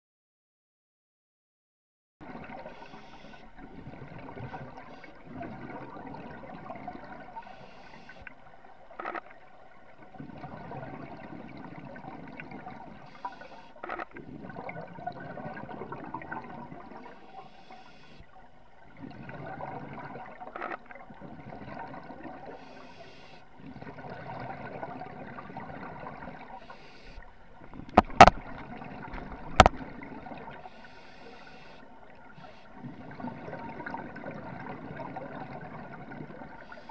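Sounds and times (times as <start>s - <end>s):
underwater bubbles gurgling: 2.2s - 36.9s.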